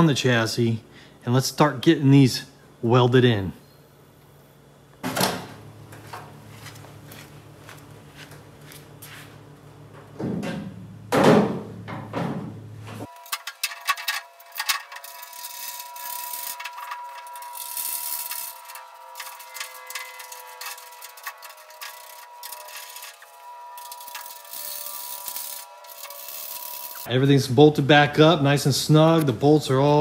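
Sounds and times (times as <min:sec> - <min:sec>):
metal parts clanking: 0:13.1 - 0:27.1.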